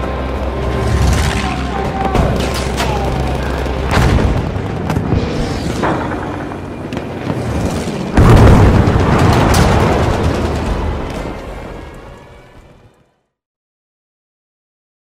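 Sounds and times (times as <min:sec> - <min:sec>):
music: 0:00.0 - 0:08.2
booming rumbling sound effects: 0:00.6 - 0:13.0.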